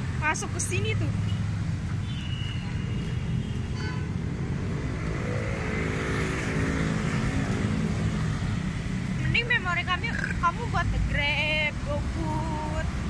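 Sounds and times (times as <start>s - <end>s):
low traffic rumble: 0.0s - 13.0s
motor scooter passing: 4.4s - 8.8s.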